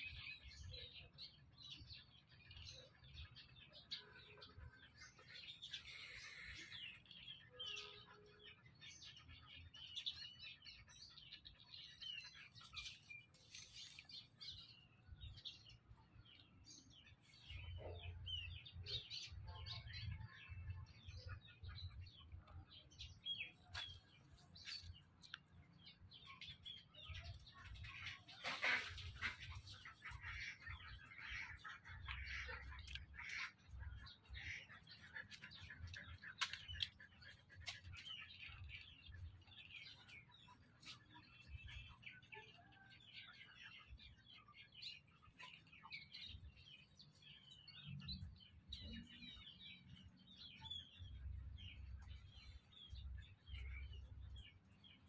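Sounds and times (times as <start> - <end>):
small birds chirping: 0.0 - 55.0.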